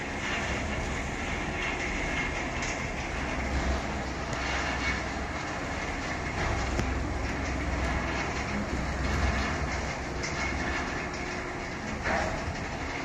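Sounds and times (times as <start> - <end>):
elevator car rumbling on rails: 0.0 - 13.0.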